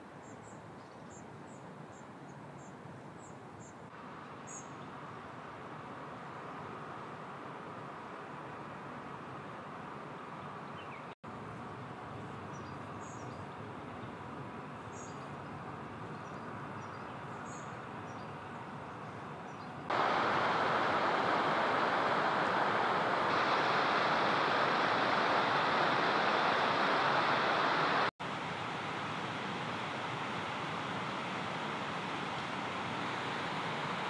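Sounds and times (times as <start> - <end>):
outdoor background noise: 0.0 - 34.0
faint high bird chirps: 4.4 - 4.9
loud steady rushing noise: 19.9 - 34.0.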